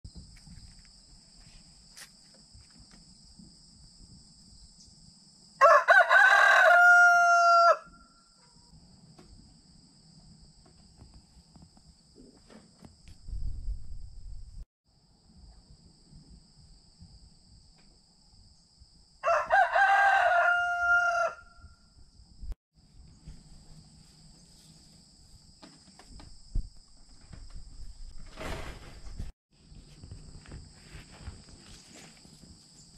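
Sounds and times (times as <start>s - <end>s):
rooster crowing: 5.6s - 8.4s, 19.2s - 21.8s.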